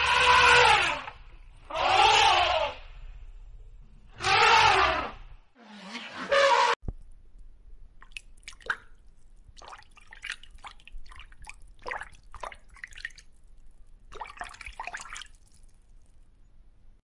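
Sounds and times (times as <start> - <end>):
water dripping and bubbling: 8.0 - 16.4.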